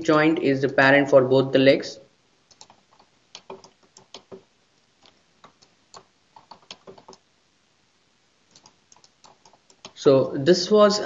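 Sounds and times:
computer mouse and keyboard clicking: 2.5s - 7.2s, 8.5s - 10.0s.

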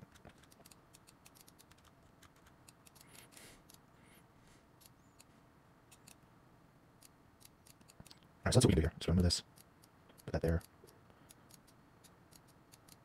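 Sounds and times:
computer mouse clicks: 0.0s - 3.8s, 11.3s - 13.0s.

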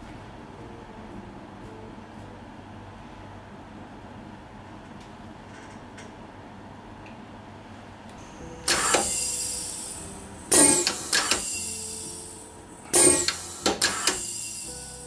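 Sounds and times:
heel press strokes: 8.6s - 15.0s.

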